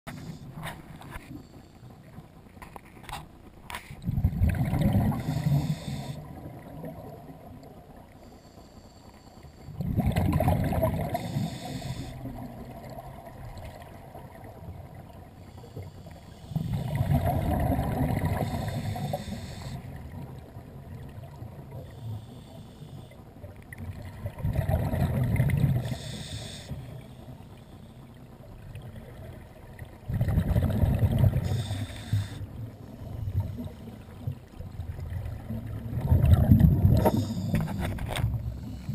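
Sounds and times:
exhaled bubbles underwater: 4.0 - 8.0, 9.7 - 15.3, 16.5 - 21.9, 23.4 - 27.0, 28.4 - 38.9.

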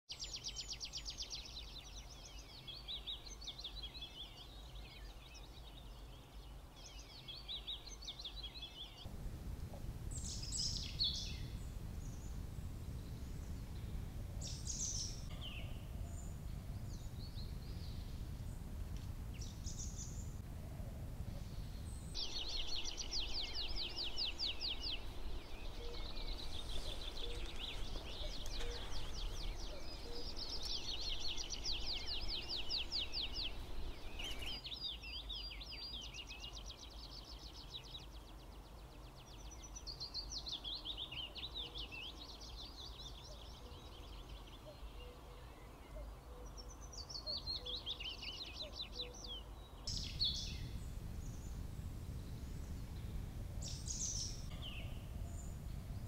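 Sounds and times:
songbirds trilling: 0.1 - 56.0
low steady rumble: 9.0 - 34.7, 49.7 - 56.0.

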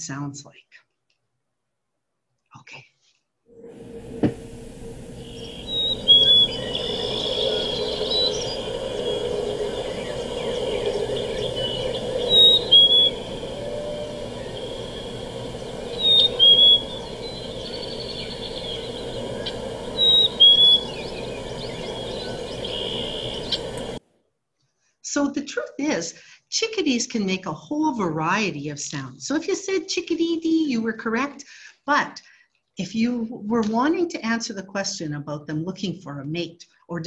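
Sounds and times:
outdoor background hiss: 3.6 - 24.0
bird whistling two-note song: 5.2 - 15.2, 15.9 - 23.6.

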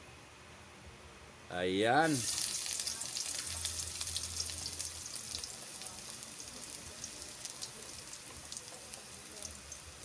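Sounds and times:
garlic sizzling in oil: 2.0 - 10.0.

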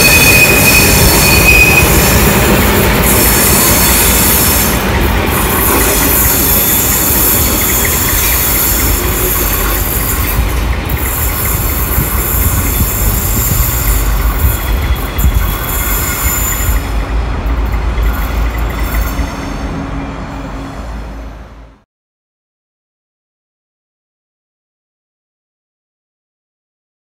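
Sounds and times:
train wheels squealing: 0.0 - 21.6
train rolling rumble: 0.0 - 21.8.

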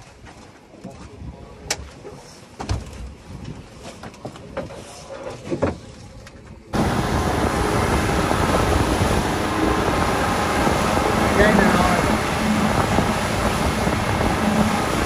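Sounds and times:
wind: 0.0 - 15.0
churning wake: 1.5 - 15.0
boat engine at speed: 6.7 - 15.0.

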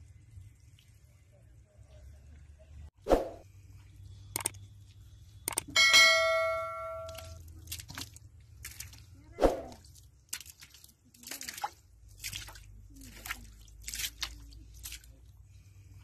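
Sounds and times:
wet mud squelching: 6.4 - 16.0.

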